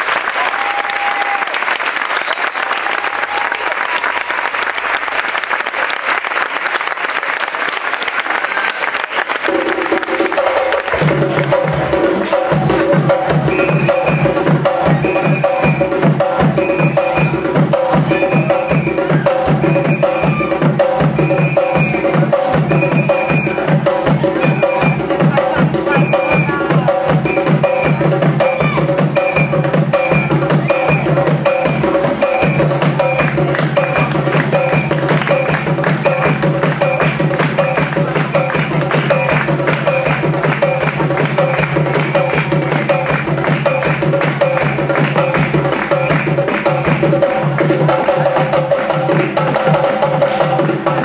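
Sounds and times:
audience applauding: 0.0s - 14.1s, 30.0s - 51.0s
hand drums rhythm: 9.5s - 51.0s.

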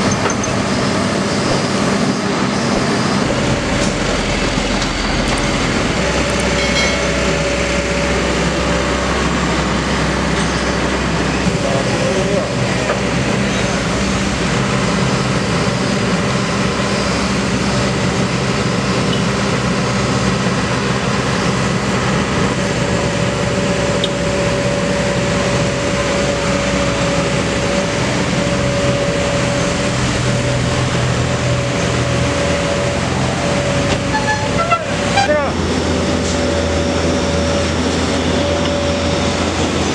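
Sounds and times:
excavator diesel engine running: 0.0s - 39.9s
steady whine: 0.0s - 39.9s.

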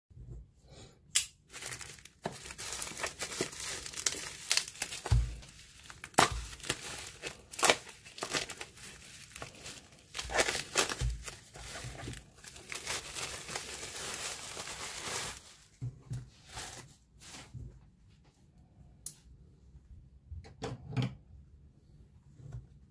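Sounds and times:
bubble wrap crinkling and tearing: 1.3s - 17.6s.

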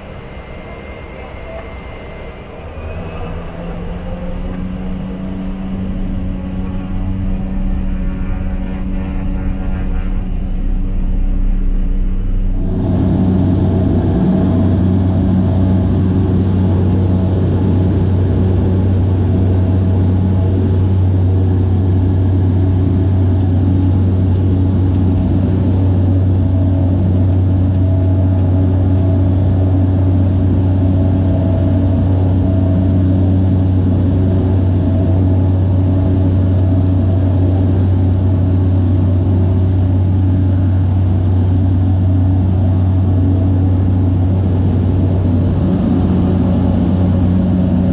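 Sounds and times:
low propeller hum: 0.0s - 47.9s
turboprop engine drone: 0.0s - 47.9s.

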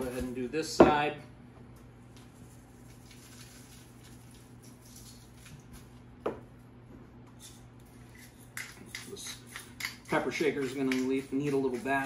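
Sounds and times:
seasoning pattering onto meat: 8.5s - 12.0s.

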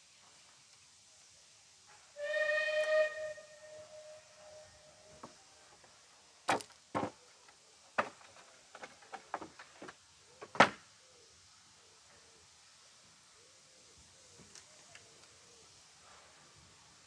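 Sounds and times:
steam locomotive whistle: 2.2s - 5.2s.

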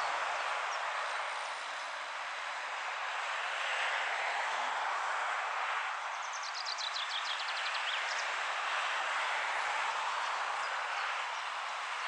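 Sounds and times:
songbird singing: 6.2s - 8.3s.

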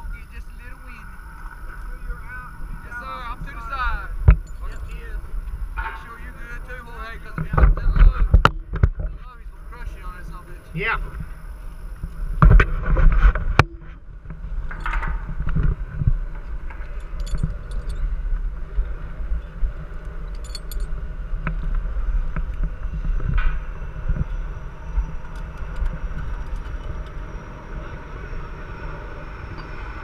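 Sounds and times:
steady low rumble: 0.0s - 30.0s
metal gear clinking on pole: 16.8s - 18.1s, 20.2s - 20.9s.

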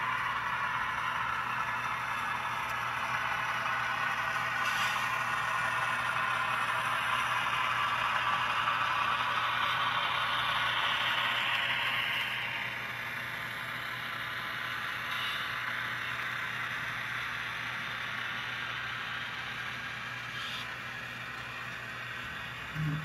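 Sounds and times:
low steady hum: 21.3s - 23.0s.

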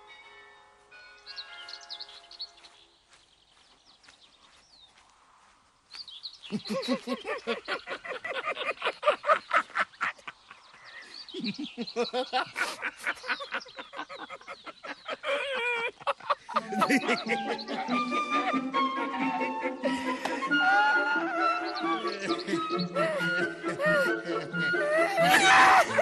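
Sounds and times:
men laughing hard: 6.5s - 26.0s
faint bird chirps: 9.5s - 15.6s.

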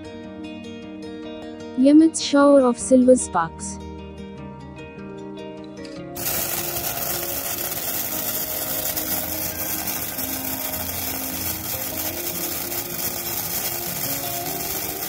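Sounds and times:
spark torch hissing: 6.2s - 15.0s.

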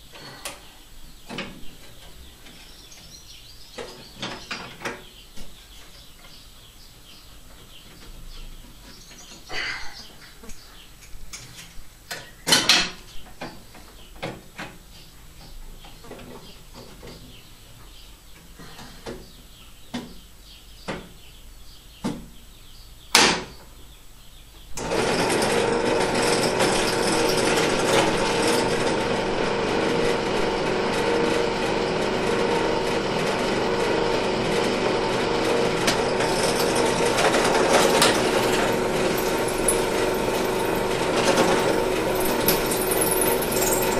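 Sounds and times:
drill press running: 24.8s - 43.9s.

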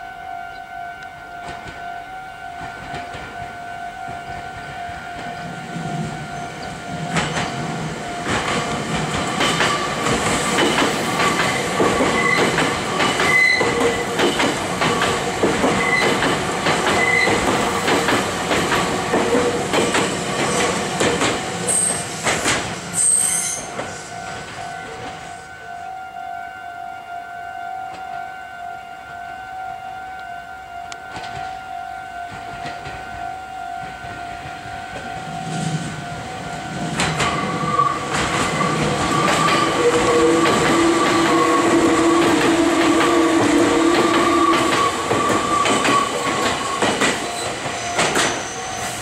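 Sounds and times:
level-crossing warning bell: 0.0s - 49.0s
train wheels clickety-clack: 2.6s - 3.5s, 4.1s - 25.3s, 31.1s - 31.6s, 32.3s - 33.0s, 36.8s - 49.0s
flange squeal: 21.7s - 25.9s, 35.3s - 49.0s.

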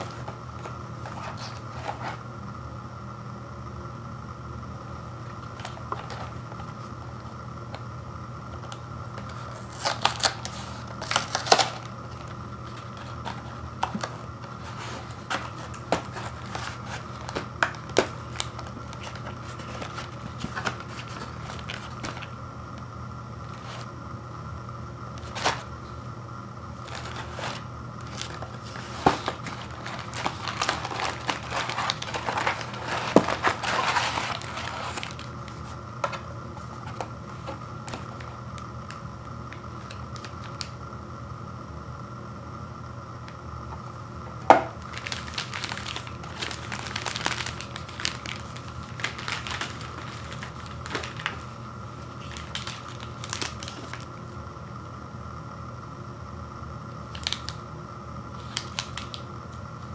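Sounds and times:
plastic wrapper crinkling: 8.6s - 22.3s, 25.2s - 25.7s, 26.8s - 40.7s, 44.5s - 54.1s, 57.1s - 57.6s, 58.4s - 59.2s
cardboard box ripping: 26.8s - 35.3s.

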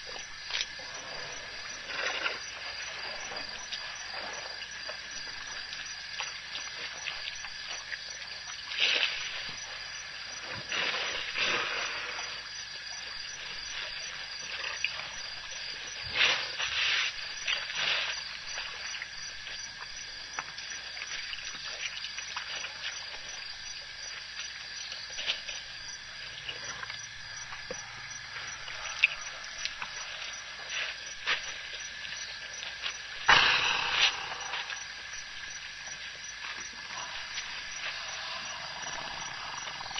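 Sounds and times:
night insects droning: 0.0s - 39.9s
short noisy bursts: 33.3s - 35.0s.

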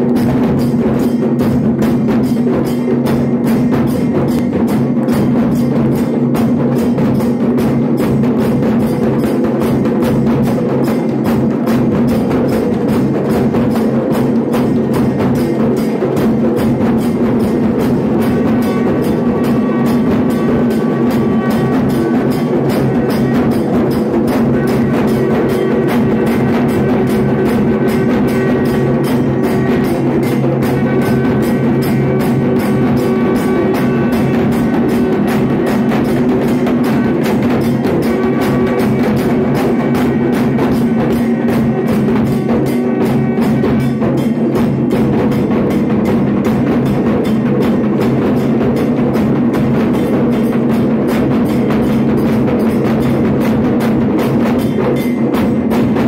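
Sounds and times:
barrel drums and frame drum beating: 0.0s - 56.0s
higher ringing tones: 10.6s - 53.5s.

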